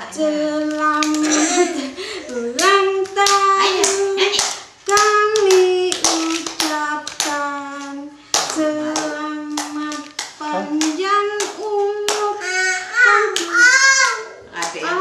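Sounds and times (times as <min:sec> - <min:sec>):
people singing a birthday song: 0:00.0 - 0:15.0
hands clapping a steady beat: 0:02.3 - 0:12.4, 0:13.3 - 0:13.6.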